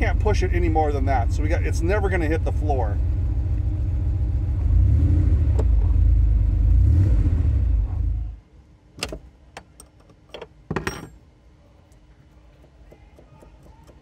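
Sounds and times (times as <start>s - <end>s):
car engine rumbling: 0.0s - 14.0s
sharp clicks and knocks: 11.9s - 14.0s.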